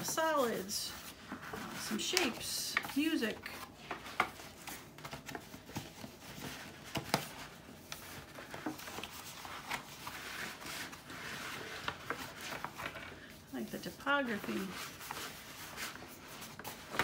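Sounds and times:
paper rustling and crackling: 0.0s - 17.0s.

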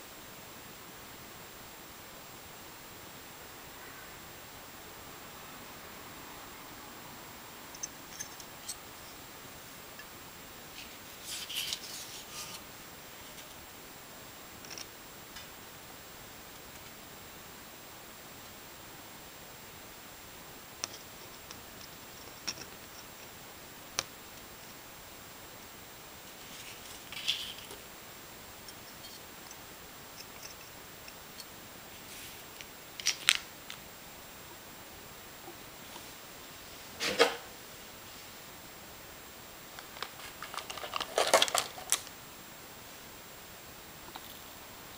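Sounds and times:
faint hiss: 0.0s - 44.9s
plastic bag crinkling: 40.0s - 42.0s.

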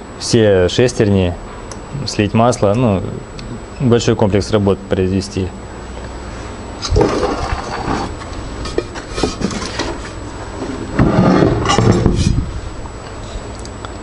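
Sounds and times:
metal parts knocking and rubbing: 6.8s - 10.1s, 11.0s - 12.4s.

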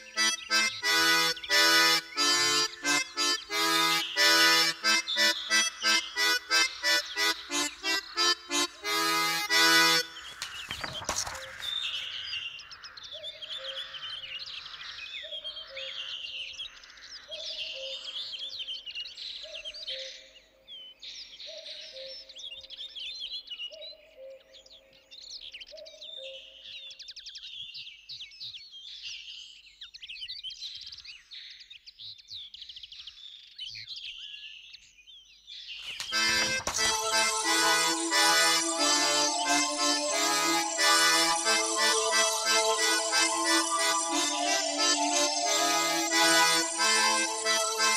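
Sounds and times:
music: 0.0s - 10.1s, 36.1s - 47.9s
birds chirping and twittering: 0.0s - 47.9s.

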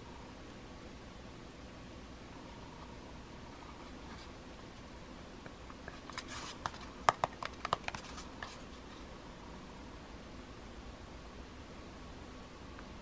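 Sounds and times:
faint steady hiss: 0.0s - 13.0s
fingers tapping plastic phone: 7.1s - 8.0s.

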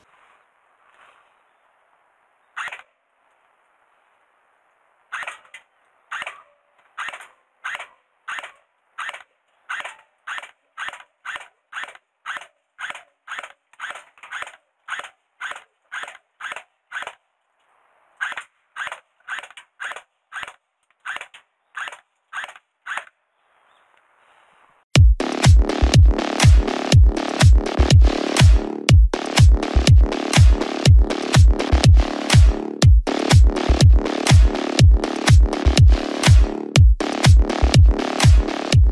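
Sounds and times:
electronic dance music: 25.0s - 38.9s.

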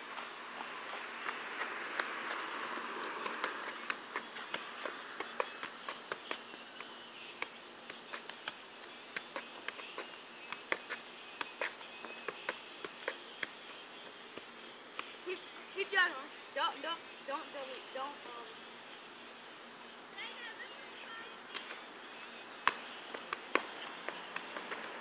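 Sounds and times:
soccer ball taps: 0.1s - 15.2s, 22.6s - 25.0s.

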